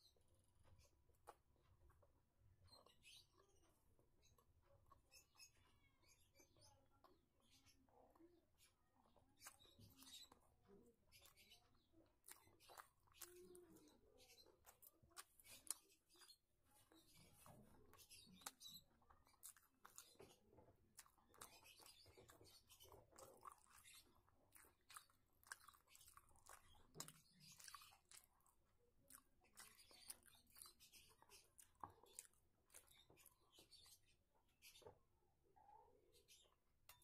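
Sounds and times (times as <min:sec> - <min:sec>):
person chewing food: 0:00.0 - 0:35.0
mouth clicks and lip smacks: 0:12.2 - 0:34.0.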